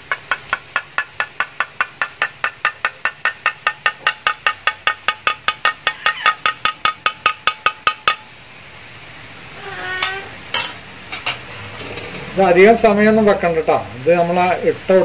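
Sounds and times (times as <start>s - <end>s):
metal strainer tapping: 0.1s - 8.3s.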